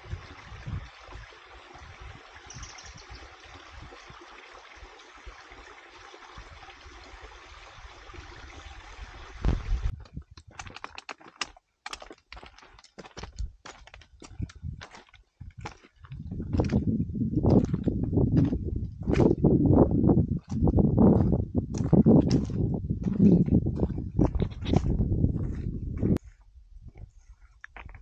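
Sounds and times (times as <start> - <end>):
wind buffeting microphone: 0.0 - 4.1, 7.7 - 10.2, 14.2 - 27.3
footsteps on stony trail: 9.5 - 28.0.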